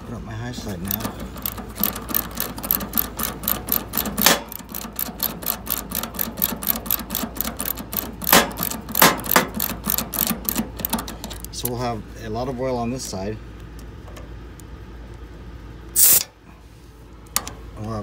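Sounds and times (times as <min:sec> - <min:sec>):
ratchet wrench clicking: 0:00.8 - 0:11.7.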